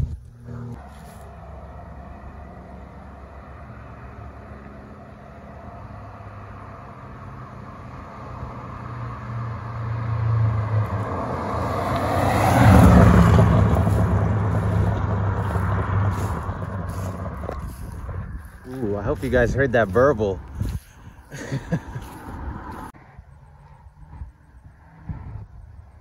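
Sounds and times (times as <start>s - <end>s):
car exhaust driving past: 0.0s - 26.0s.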